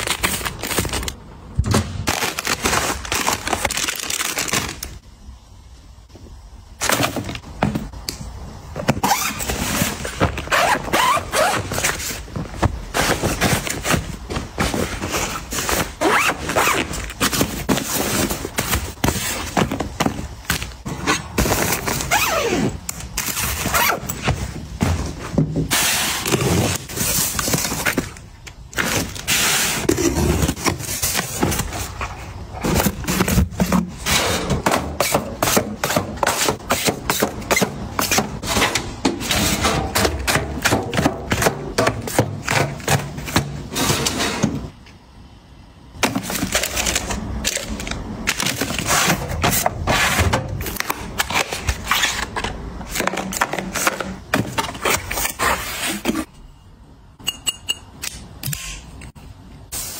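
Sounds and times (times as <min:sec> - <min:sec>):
cardboard boxes into metal drawer: 0:08.8 - 0:28.2, 0:28.8 - 0:44.7, 0:46.0 - 0:56.3.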